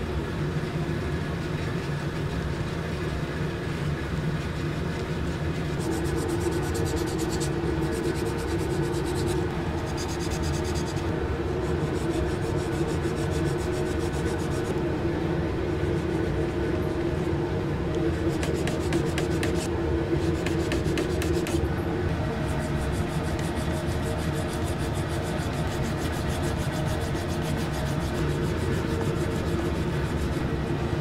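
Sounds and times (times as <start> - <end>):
steady low hum: 0.0 - 31.0
sandpaper rubbing on wood: 5.8 - 11.1, 11.7 - 14.7, 18.2 - 21.6, 22.4 - 30.4.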